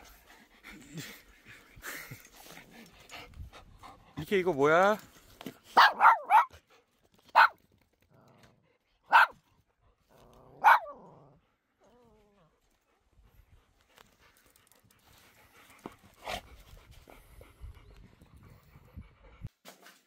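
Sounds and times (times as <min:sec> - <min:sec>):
small dog barking: 0:05.8 - 0:06.6, 0:07.3 - 0:07.6, 0:09.1 - 0:09.4, 0:10.5 - 0:11.1.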